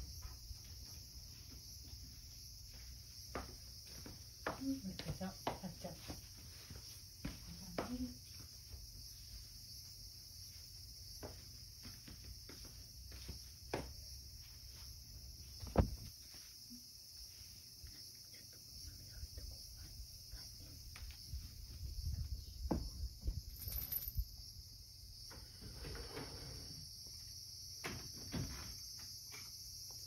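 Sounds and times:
footsteps in socks: 0:00.0 - 0:16.6
insect chirring: 0:06.5 - 0:25.4.

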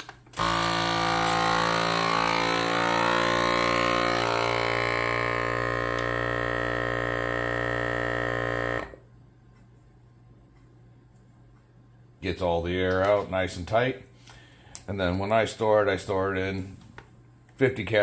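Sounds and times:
vacuum sealer pump humming: 0:00.0 - 0:09.1.

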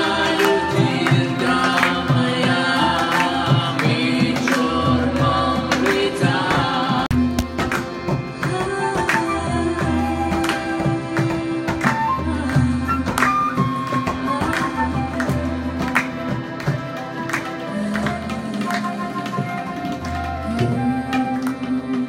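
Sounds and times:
person singing: 0:00.0 - 0:07.6, 0:17.6 - 0:22.0.

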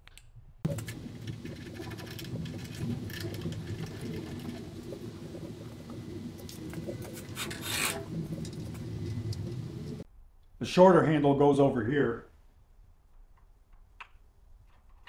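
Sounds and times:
metal clicks and scraping: 0:00.0 - 0:10.0
steady low hum: 0:00.6 - 0:10.0.

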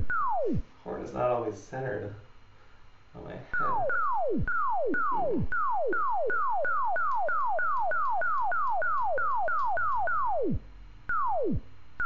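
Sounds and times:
laser gun pew sounds: 0:03.6 - 0:11.7.

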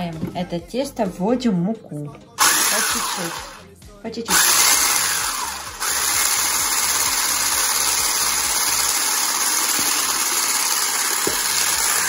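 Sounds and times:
electric hand blender whisking batter: 0:02.4 - 0:03.7, 0:04.3 - 0:12.0.

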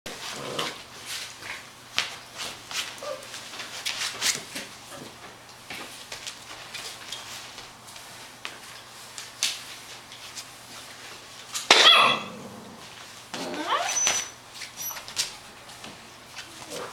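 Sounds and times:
puppy rustling on fabric: 0:00.2 - 0:04.9.

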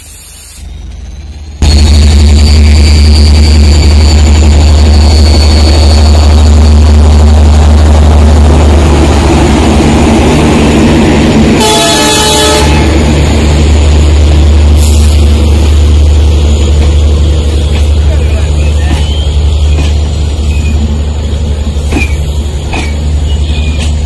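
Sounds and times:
passenger train rumbling past: 0:00.0 - 0:24.0
train horn: 0:11.6 - 0:13.0.

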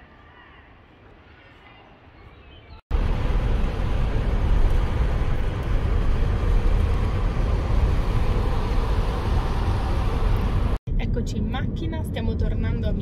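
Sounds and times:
car driving heard from inside: 0:03.0 - 0:12.9.

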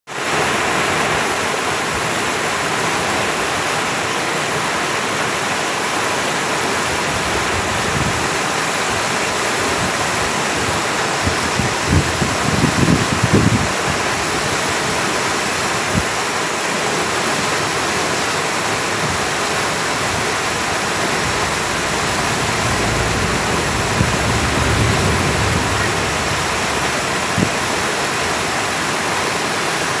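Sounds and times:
whitewater rushing over dam: 0:00.1 - 0:30.0
low rumbles: 0:19.0 - 0:29.3.

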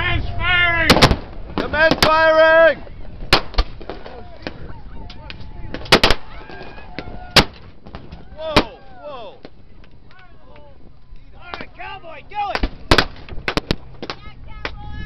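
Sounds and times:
blank gunfire bangs: 0:00.9 - 0:02.2.

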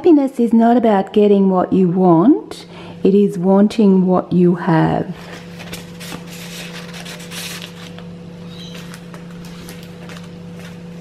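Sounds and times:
steady low hum: 0:00.0 - 0:11.0
paper pages rustling: 0:05.2 - 0:11.0.

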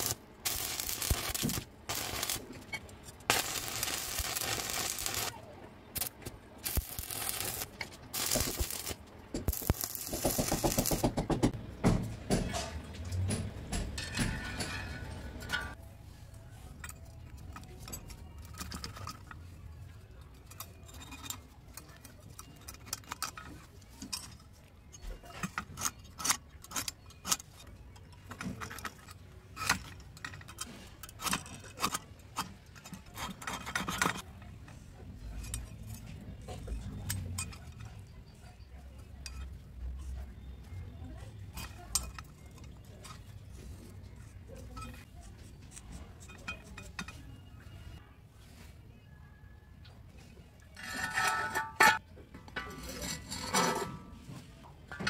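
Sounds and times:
scriber scratching steel: 0:00.0 - 0:05.4, 0:06.0 - 0:11.4, 0:50.8 - 0:52.0
metal tools clinking on steel plate: 0:12.4 - 0:15.8, 0:20.1 - 0:34.4, 0:45.7 - 0:47.5, 0:50.8 - 0:52.0.

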